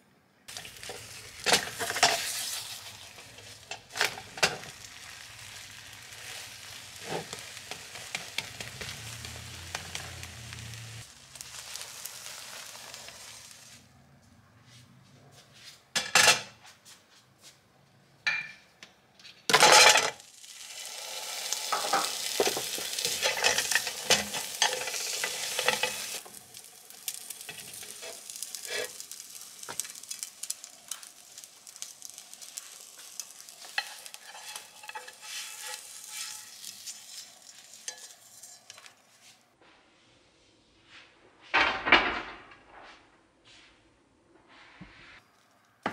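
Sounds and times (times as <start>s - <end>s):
food sizzling in a pan: 0.5s - 13.9s, 19.6s - 39.5s.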